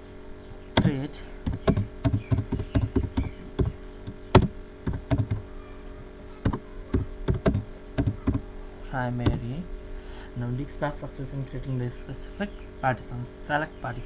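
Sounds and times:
keyboard key clicks: 4.4 - 5.4.

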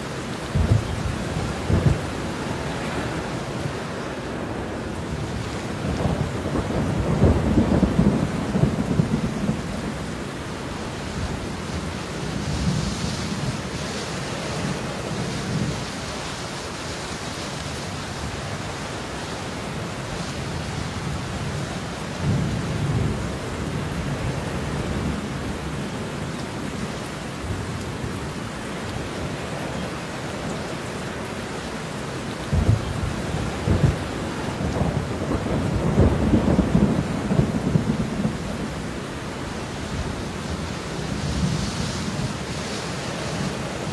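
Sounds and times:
steady rain falling: 0.0 - 43.9
thunder rumbling: 0.4 - 13.8, 32.4 - 42.6.

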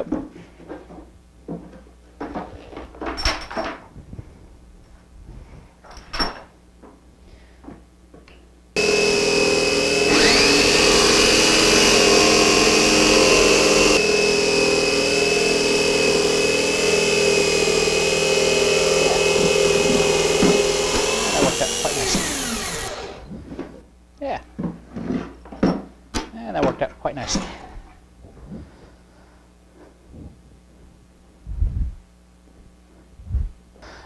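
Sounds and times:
jigsaw cutting with high whine: 8.8 - 23.3.

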